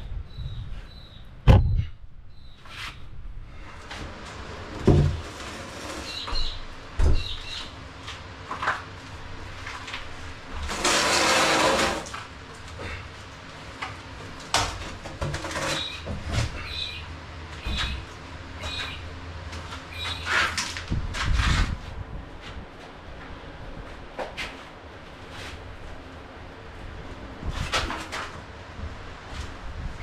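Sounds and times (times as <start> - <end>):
timber beam scraping: 3.9 - 6.6, 10.6 - 12.3, 15.3 - 16.7.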